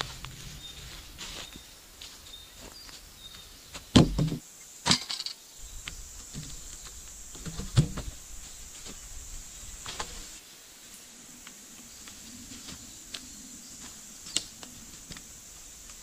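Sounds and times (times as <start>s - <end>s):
faint high-pitched hiss: 0.0s - 16.0s
sharp knocks and thuds: 3.8s - 5.0s, 5.8s - 8.2s.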